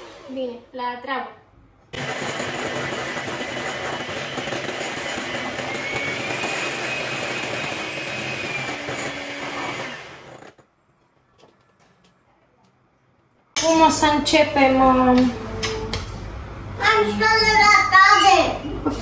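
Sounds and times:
electric hand mixer whisking: 2.0 - 10.6.

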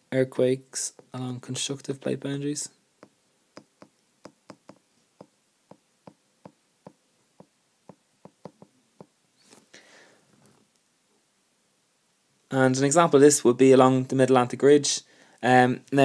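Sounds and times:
stylus tapping on glass screen: 3.0 - 9.1
soft breathy noise: 9.4 - 10.5, 15.0 - 15.4.

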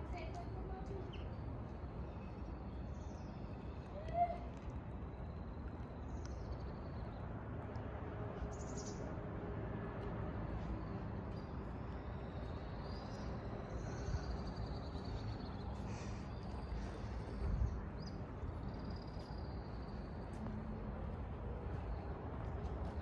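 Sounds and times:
low outdoor rumble: 0.0 - 23.0
birds calling and chirping: 10.7 - 20.4.

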